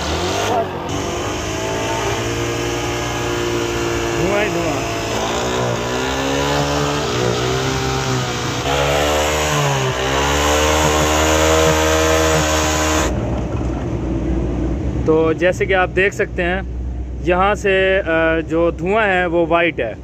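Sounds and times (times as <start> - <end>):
motorcycle engine running: 0.0 - 13.8.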